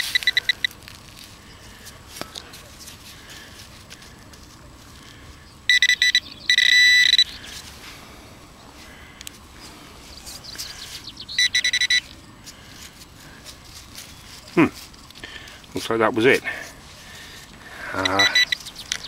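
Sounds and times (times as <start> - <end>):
pinpointer beeping in fast pulses: 0.0 - 0.8, 5.7 - 7.4, 11.3 - 12.1, 18.0 - 18.7.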